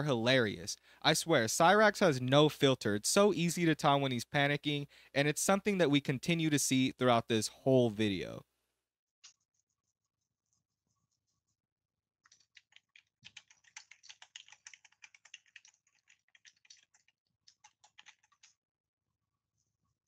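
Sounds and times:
fast typing on keyboard: 12.2s - 18.6s.

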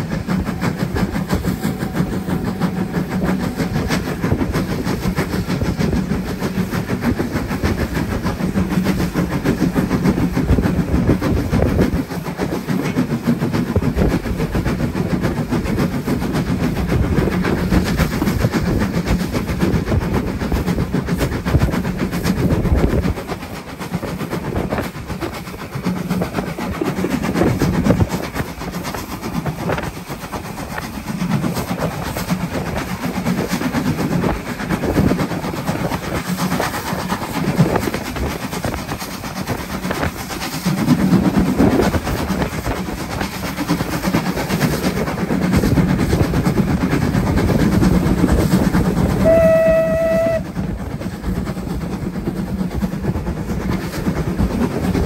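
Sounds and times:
train wheels rumbling and rattling: 0.0s - 55.0s
locomotive whistle blast: 49.1s - 50.6s.

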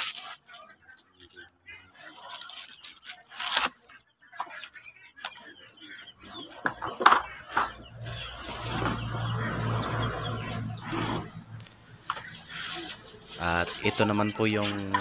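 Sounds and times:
plastic and cardboard rustling: 0.0s - 3.9s, 11.9s - 15.0s.

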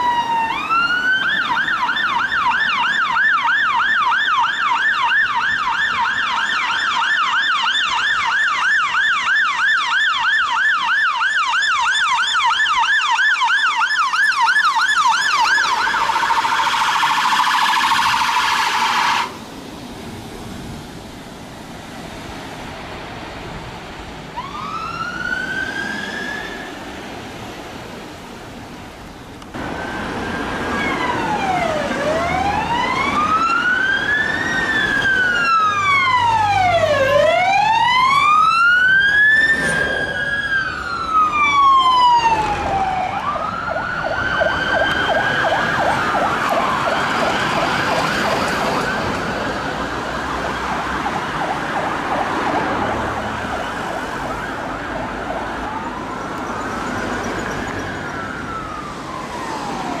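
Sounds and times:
siren fast yelp: 0.0s - 19.3s, 29.8s - 49.1s
fire engine sirens wailing: 0.0s - 19.5s, 23.0s - 28.8s, 29.5s - 60.0s.

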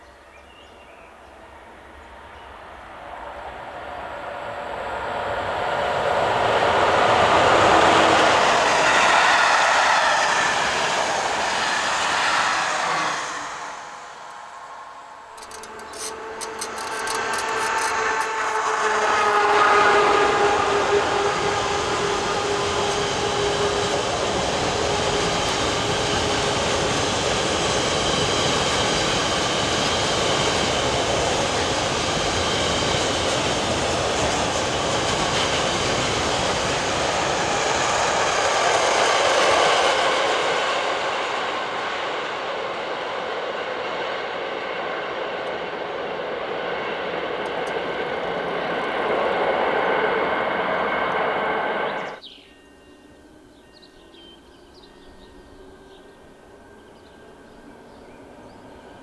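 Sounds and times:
locomotive humming: 1.1s - 59.0s
train wheels clattering on rails: 15.2s - 51.2s.

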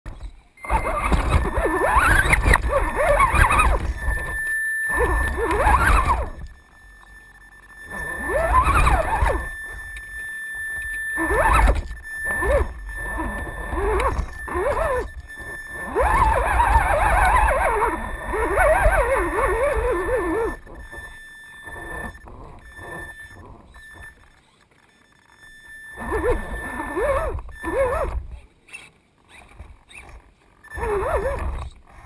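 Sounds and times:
electric motor whining: 0.1s - 32.0s.

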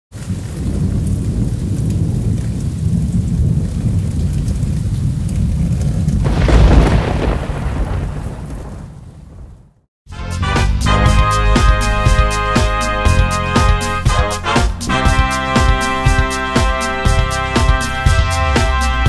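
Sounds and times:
rain hiss: 0.1s - 9.0s
rolling thunder: 0.1s - 9.9s
loud thunder crash: 6.2s - 9.9s.

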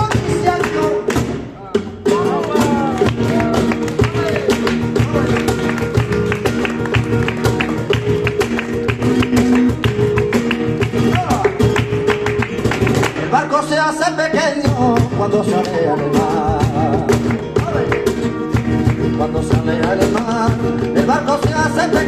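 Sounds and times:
man singing: 0.0s - 5.9s, 13.2s - 22.0s
rhythmic hand clapping: 0.0s - 13.5s, 14.5s - 22.0s
flamenco guitar: 0.0s - 22.0s.

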